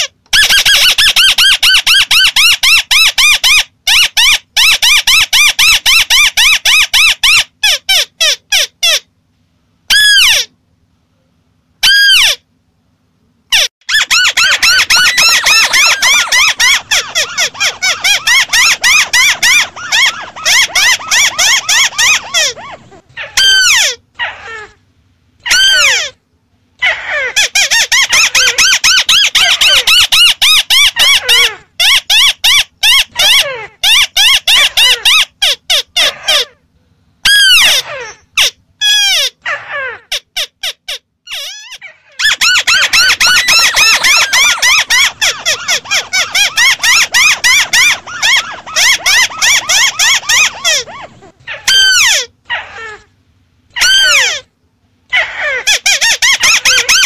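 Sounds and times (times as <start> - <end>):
bird chattering calls: 13.6 - 24.5, 42.2 - 53.0.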